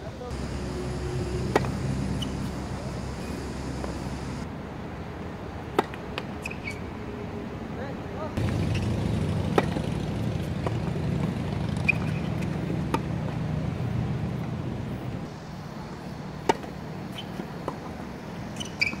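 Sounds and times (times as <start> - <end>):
racket hitting tennis ball: 0.3 - 4.4, 9.5 - 9.8, 16.4 - 17.9.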